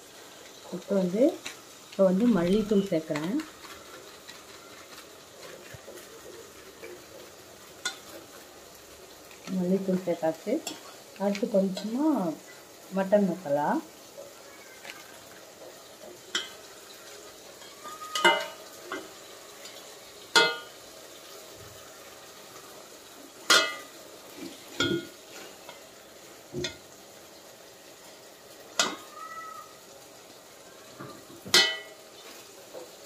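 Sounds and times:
meat and onions sizzling in oil: 0.0 - 33.0
metal spoon clinking on pot: 16.3 - 16.6, 18.1 - 20.8, 23.5 - 23.9, 31.5 - 32.0.

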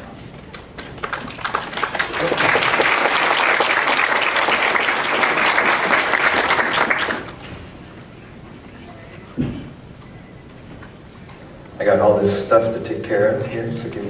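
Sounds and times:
audience applauding: 0.5 - 7.5.

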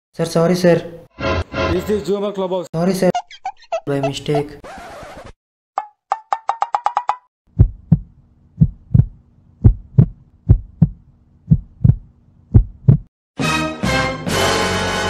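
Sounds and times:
music: 1.2 - 2.1, 13.4 - 15.0
heartbeat double thumps: 7.5 - 13.1.

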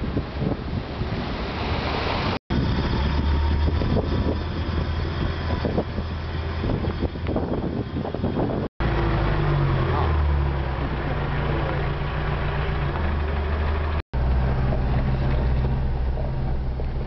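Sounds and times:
wind buffeting microphone: 0.0 - 9.7
car engine droning: 2.5 - 17.0.

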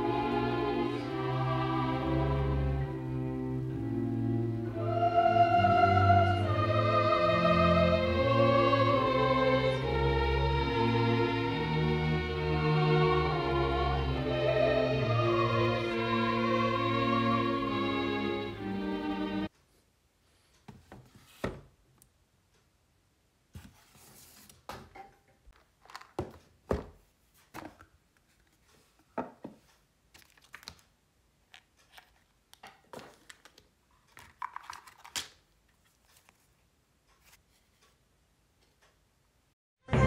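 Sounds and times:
handling cardboard game box: 25.6 - 26.8, 30.1 - 30.8, 31.5 - 36.6.

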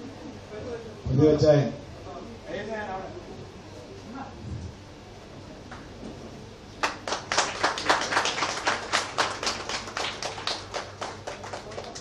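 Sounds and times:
small audience clapping: 6.8 - 12.0.

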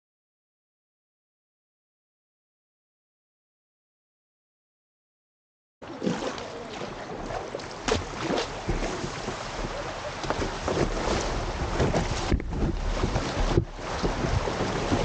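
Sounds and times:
paddle splashes: 5.8 - 15.0
water rushing and splashing: 5.8 - 15.0
wind buffeting microphone: 7.2 - 15.0.

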